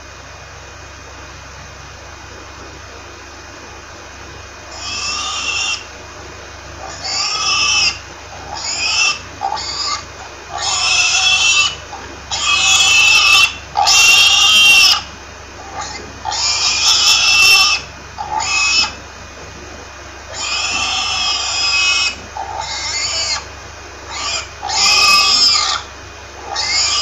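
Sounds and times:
pig squealing: 0:04.7 - 0:05.9, 0:06.7 - 0:27.0.

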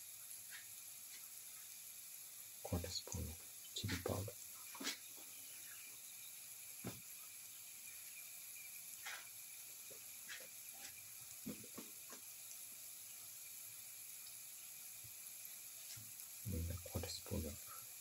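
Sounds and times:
faint sizzling in hot oil: 0:00.0 - 0:18.0
pops and crackles: 0:09.0 - 0:12.3.

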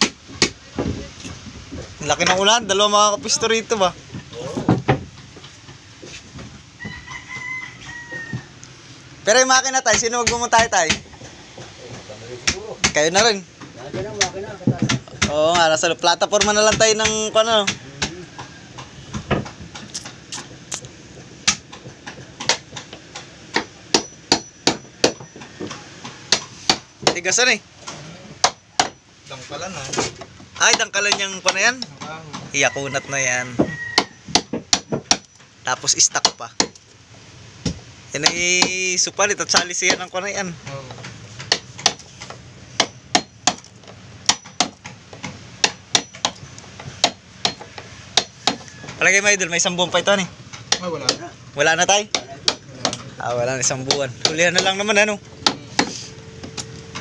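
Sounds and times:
hammer knocking on wood: 0:04.1 - 0:07.0, 0:09.7 - 0:19.9, 0:21.2 - 0:27.5, 0:28.4 - 0:29.0, 0:29.9 - 0:32.6, 0:33.5 - 0:36.8, 0:37.6 - 0:49.0, 0:49.6 - 0:53.0, 0:53.6 - 0:57.0
hammer striking chisel into wood: 0:21.4 - 0:25.4, 0:26.3 - 0:27.3, 0:28.4 - 0:29.0, 0:33.6 - 0:35.4, 0:36.2 - 0:36.8, 0:37.7 - 0:40.2, 0:41.4 - 0:48.6, 0:51.9 - 0:53.0, 0:53.8 - 0:57.0.

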